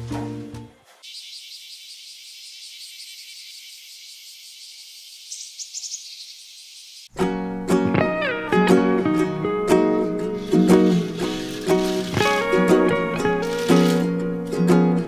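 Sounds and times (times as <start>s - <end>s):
crickets chirping: 1.0s - 7.1s.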